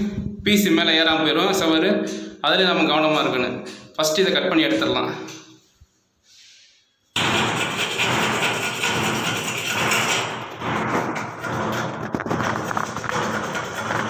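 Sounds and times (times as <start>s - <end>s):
hacksaw rasping on metal: 7.2s - 14.0s.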